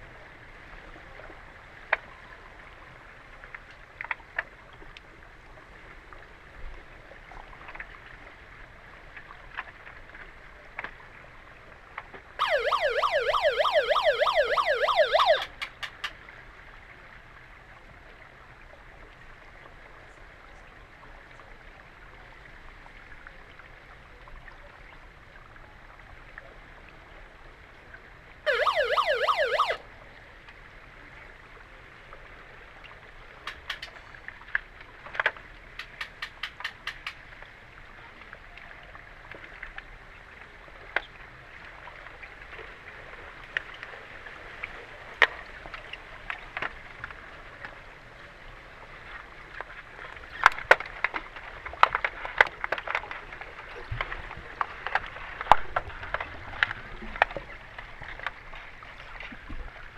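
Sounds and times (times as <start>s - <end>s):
warbling underwater siren: 12.4s - 15.6s, 28.5s - 29.8s.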